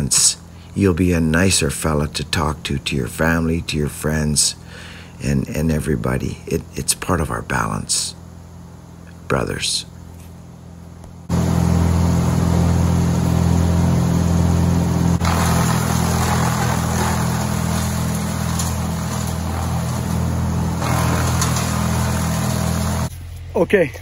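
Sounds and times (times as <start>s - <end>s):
engine running steadily: 7.6s - 23.5s.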